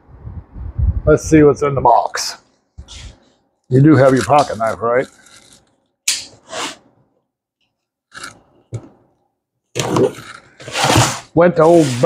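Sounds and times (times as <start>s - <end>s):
sharp click: 6.1s - 6.4s
knife scraping through cardboard: 10.1s - 12.0s.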